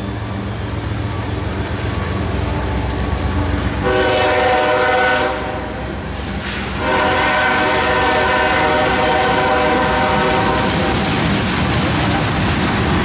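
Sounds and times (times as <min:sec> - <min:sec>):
train wheels rumbling: 0:00.0 - 0:13.0
train horn chord: 0:03.8 - 0:11.0.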